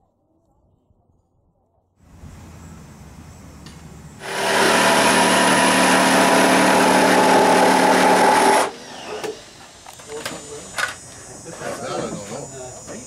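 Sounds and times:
electric saw cutting wood: 0:04.2 - 0:09.7.

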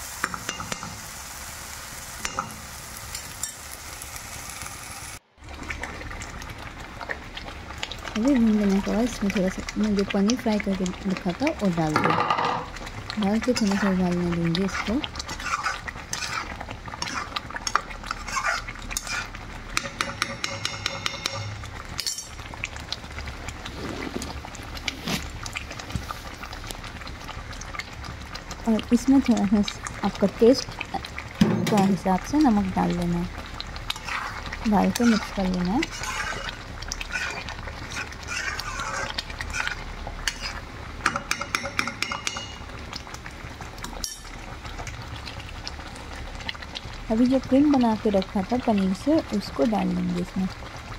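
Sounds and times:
spatula scraping metal pan: 0:14.6 - 0:21.5, 0:33.9 - 0:42.6
metal taps against pan: 0:19.8 - 0:22.3, 0:41.0 - 0:42.6.

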